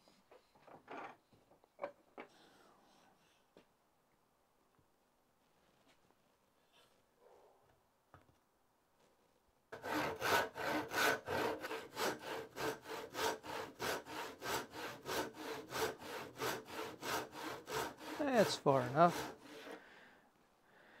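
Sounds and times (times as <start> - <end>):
faint handling sounds: 4.7 - 7.2
handsaw sawing wood: 9.8 - 19.8.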